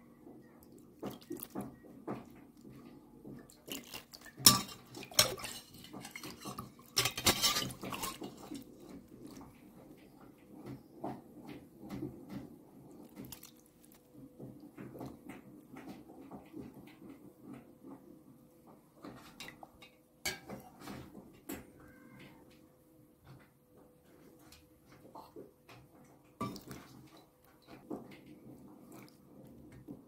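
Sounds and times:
broth splashing and dripping: 0.6 - 9.8, 12.9 - 15.2
ladle clinking against pot: 4.4 - 8.8.

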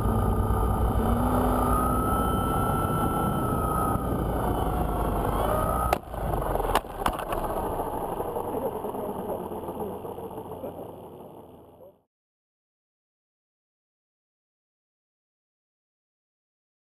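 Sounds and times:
wind noise: 0.0 - 11.6
rc helicopter rotor whine: 0.0 - 11.8.

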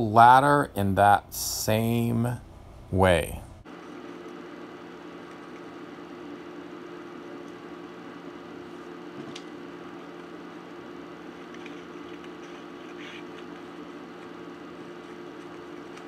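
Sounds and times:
steady background hum: 0.0 - 16.0
scissors cutting paper: 11.3 - 16.0.

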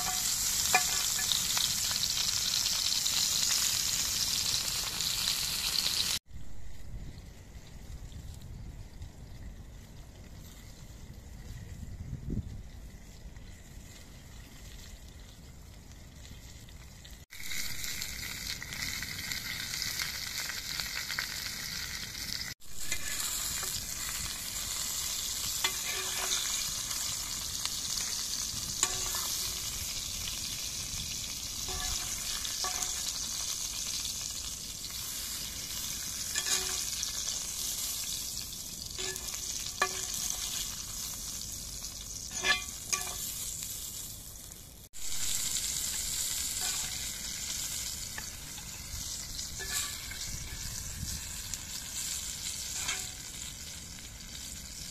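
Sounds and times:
vegetables sizzling in grill pan: 0.0 - 6.2, 16.7 - 54.9
metal skimmer clinking on pan: 36.3 - 37.0, 39.0 - 40.4, 42.3 - 43.3.

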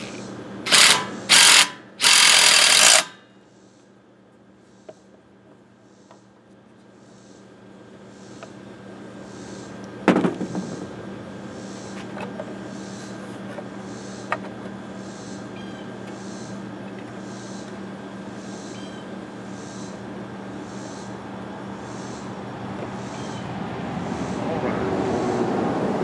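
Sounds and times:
steady low hum: 0.0 - 26.0
sharp metallic clank: 0.7 - 3.3.

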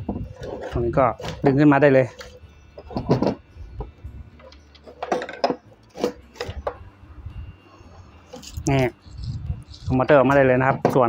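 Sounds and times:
knocks and scrapes of plastic and metal: 0.0 - 6.8, 10.6 - 11.0.

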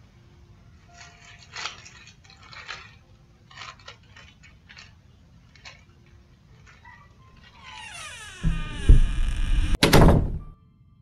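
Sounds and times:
faint handling clicks and rustles: 0.8 - 7.8.

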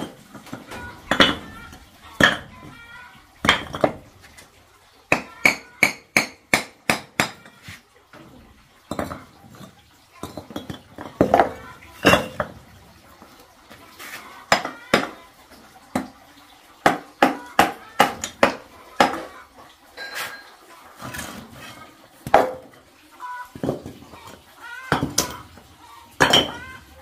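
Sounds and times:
hammer tapping on clay bricks: 5.1 - 7.5.

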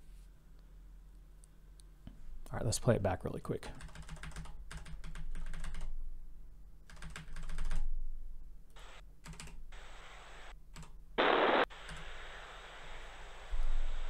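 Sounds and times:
keyboard keys clicking: 3.8 - 5.9, 6.9 - 7.8
steady hiss: 8.8 - 9.0, 9.7 - 10.6, 11.2 - 14.0.

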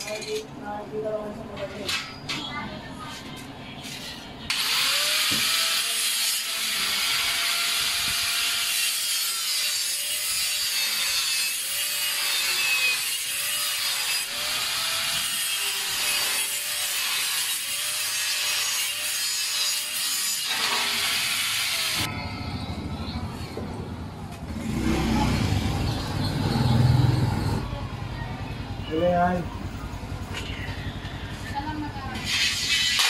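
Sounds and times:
saw rasping through wood: 4.5 - 22.1.

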